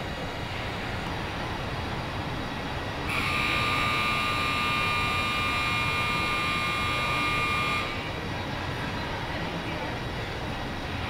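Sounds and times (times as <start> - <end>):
assembly plant machinery noise: 0.0 - 11.0.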